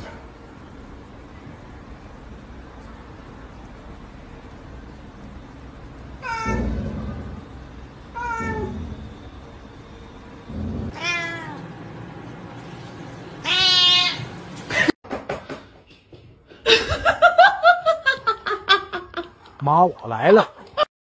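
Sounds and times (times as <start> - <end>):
cat meowing: 6.2 - 6.9, 8.1 - 8.9, 10.9 - 11.6, 13.4 - 14.3.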